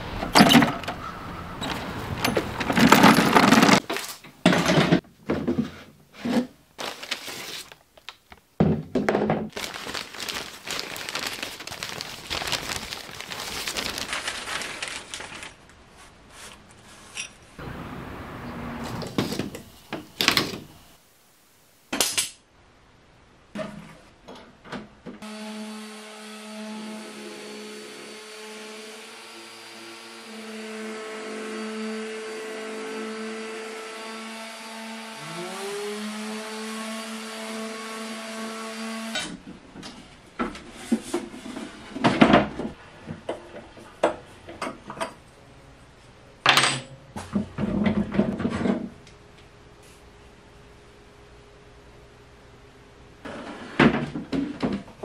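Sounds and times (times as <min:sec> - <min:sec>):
electric sander on wood: 0:25.3 - 0:38.8.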